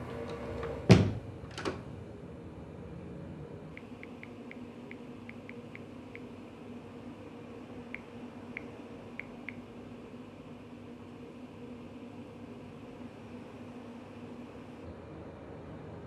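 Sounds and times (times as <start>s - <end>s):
low steady hum: 0.0s - 16.0s
touchscreen keyboard ticks: 3.8s - 6.3s.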